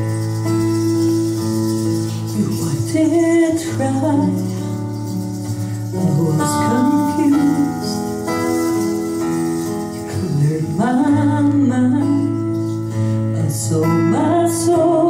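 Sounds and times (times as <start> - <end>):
bass: 0.0 - 15.0
strummed acoustic guitars: 0.0 - 15.0
woman singing: 2.3 - 5.0, 5.8 - 8.6, 10.0 - 15.0.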